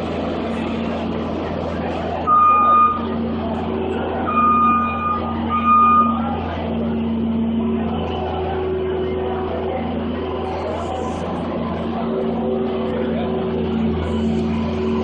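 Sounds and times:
diesel engine running: 0.0s - 15.0s
backup alarm beeps: 2.3s - 3.2s, 4.3s - 6.4s.

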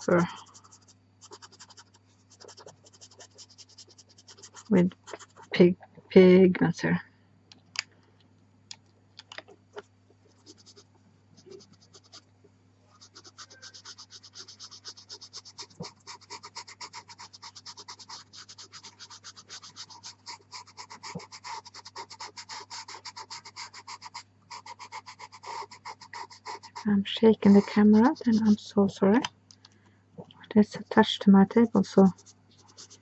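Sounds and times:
pastel pencil scratching paper: 0.0s - 5.6s, 10.3s - 10.8s, 11.4s - 12.2s, 12.9s - 28.7s, 31.8s - 33.0s.

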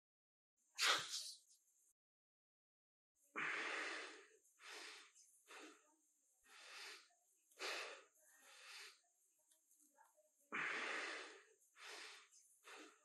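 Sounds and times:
man breathing heavily: 3.3s - 5.8s, 6.4s - 9.0s, 10.5s - 13.0s.

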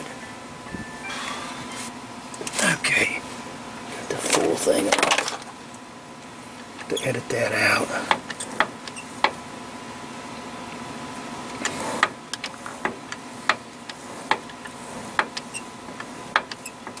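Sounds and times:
faint steady hum: 0.0s - 16.8s.

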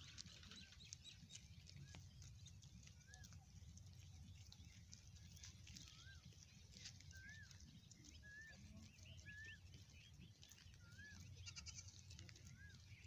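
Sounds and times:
faint animal calls: 10.4s - 13.0s.

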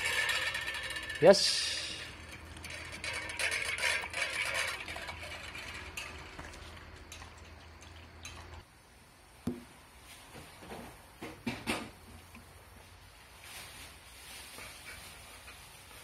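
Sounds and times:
dog eating from metal bowl: 0.0s - 8.6s
metal bowl scraping on concrete: 0.0s - 8.6s.

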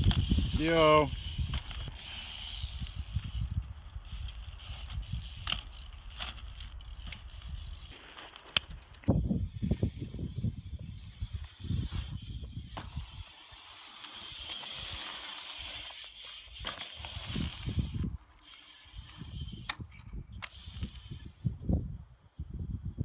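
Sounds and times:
bike tyres rolling over concrete: 0.0s - 21.3s
bike clicks and knocks: 4.1s - 9.6s, 11.0s - 21.2s.

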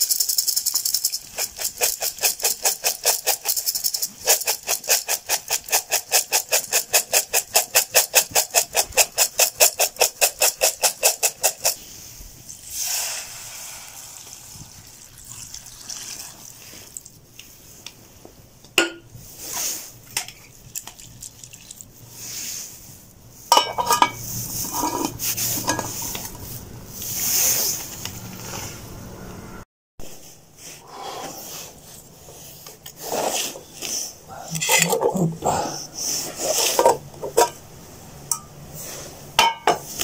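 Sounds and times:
pot lid clattering: 23.5s - 26.3s, 36.8s - 37.6s
metal cookware clinking and scraping: 23.5s - 26.6s, 34.6s - 35.1s, 36.5s - 37.6s, 39.4s - 40.0s.

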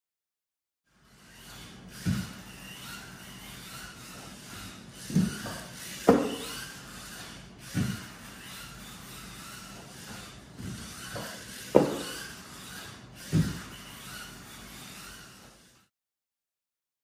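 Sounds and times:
small electric motor whining: 0.9s - 15.9s
toy car thumping on ramps: 5.0s - 6.7s, 7.6s - 8.1s, 10.2s - 14.2s.

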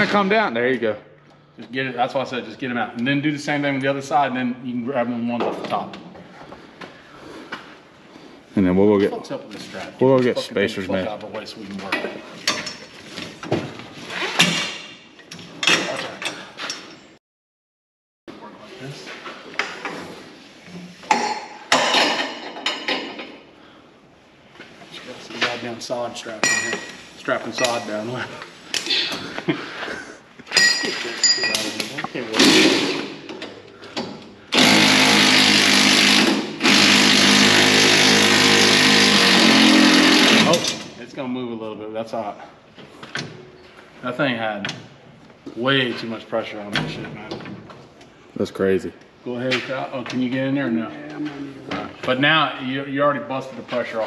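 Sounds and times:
impact wrench running: 32.4s - 33.3s, 34.5s - 40.9s.

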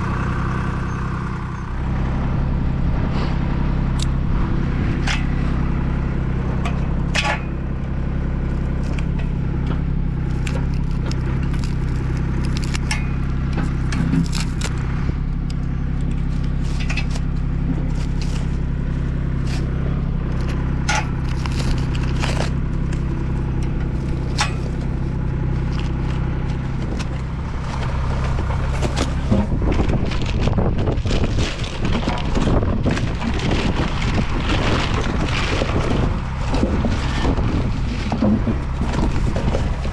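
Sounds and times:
low engine hum: 0.0s - 39.9s
hardware clicking and scraping: 8.8s - 39.9s
wind gusts on microphone: 29.3s - 39.9s.

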